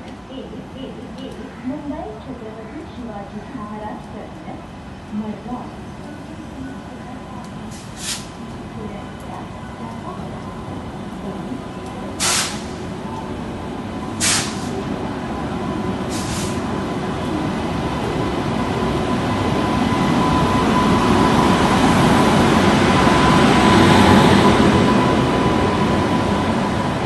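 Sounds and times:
train wheels and motors rumbling: 0.0s - 27.0s
short hisses: 7.8s - 8.3s, 12.2s - 12.8s, 14.2s - 14.7s, 16.1s - 16.6s.

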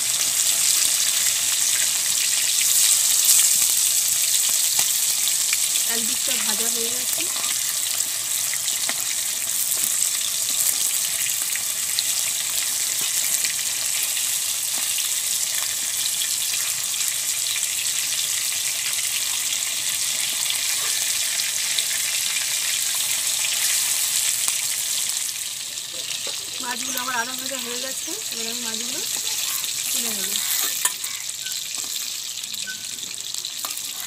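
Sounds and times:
fish sizzling in oil: 0.0s - 34.0s.

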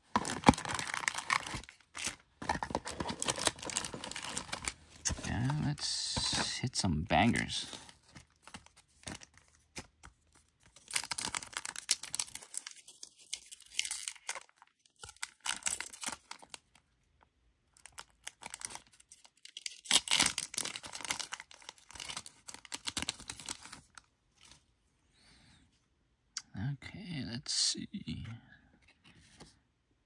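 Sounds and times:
plastic wrappers tearing and crinkling: 0.1s - 6.6s, 10.7s - 16.7s, 17.8s - 24.0s.

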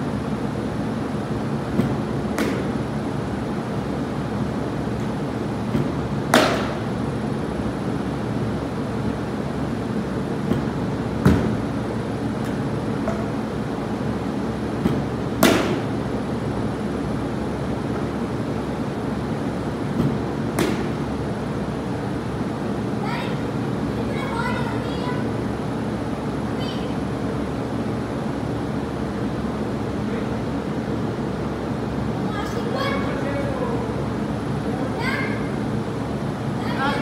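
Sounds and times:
steady machine hum: 0.0s - 37.0s
bat cracking ball: 1.7s - 2.8s, 5.7s - 6.9s, 10.4s - 11.6s, 14.8s - 16.0s, 19.9s - 21.1s.

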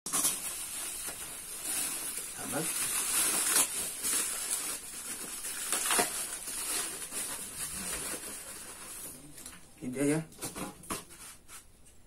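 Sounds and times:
bubble wrap crinkling: 0.1s - 9.6s.

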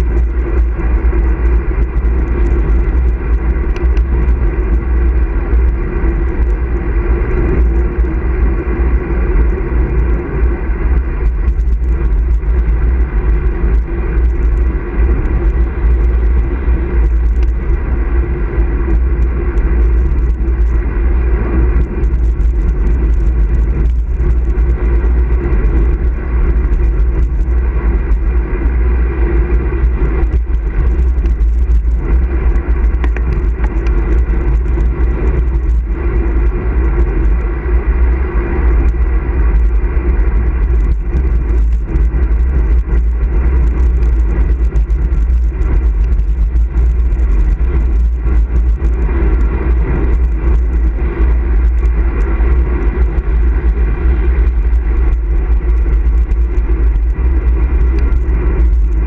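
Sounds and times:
road noise: 0.0s - 59.0s
wind rushing over microphone: 0.0s - 59.0s.

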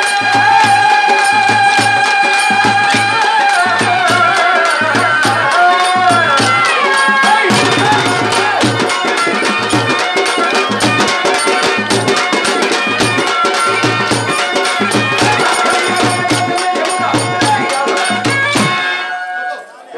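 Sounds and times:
hand drums: 0.0s - 19.2s
jingling percussion: 0.0s - 19.9s
large drum beaten with stick: 7.3s - 18.8s.

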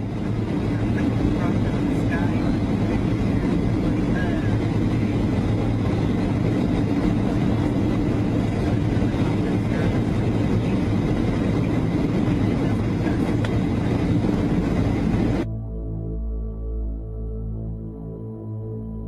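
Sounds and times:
airliner cabin engine rumble: 0.0s - 15.5s.

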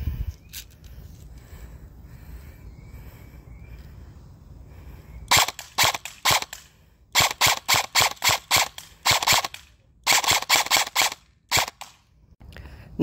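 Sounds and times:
airsoft rifle single shots: 5.3s - 6.6s, 7.2s - 12.0s.

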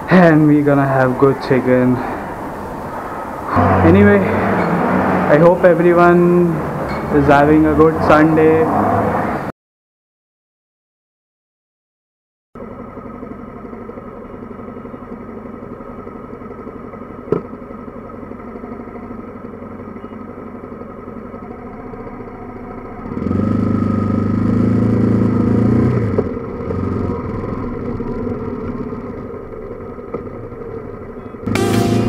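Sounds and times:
motorcycle engine running: 12.6s - 32.0s.

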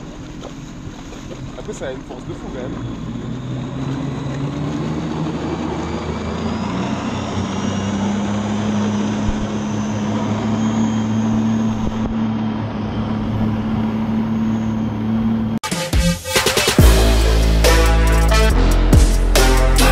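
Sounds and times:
jet ski engine running: 0.0s - 15.6s.

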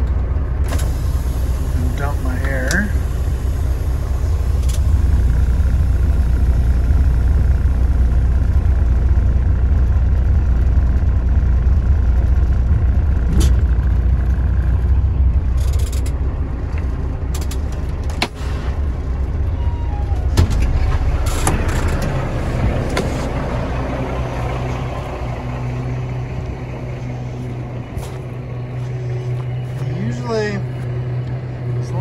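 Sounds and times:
diesel engine rumbling: 0.0s - 32.0s.

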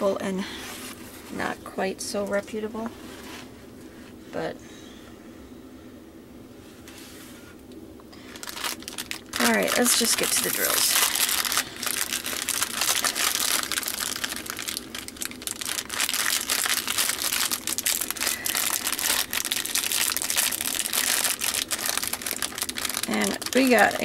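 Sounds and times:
small crackles: 7.6s - 24.0s
plastic bag crinkling: 8.2s - 24.0s.

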